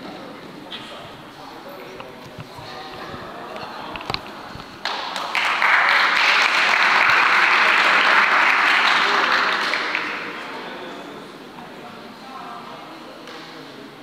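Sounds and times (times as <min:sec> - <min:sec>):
spectators applauding: 0:03.9 - 0:10.5.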